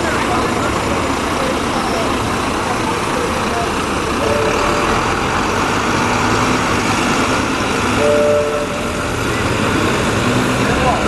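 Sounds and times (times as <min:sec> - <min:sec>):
large vehicle engine running: 0:00.0 - 0:11.0
two-note beeps: 0:04.2 - 0:05.3, 0:08.0 - 0:09.4.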